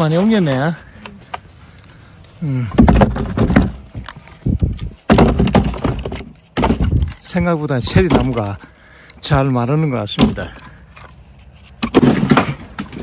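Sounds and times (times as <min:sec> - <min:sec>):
firewood knocking and clattering: 0:02.6 - 0:08.6, 0:10.1 - 0:11.1, 0:11.8 - 0:13.0.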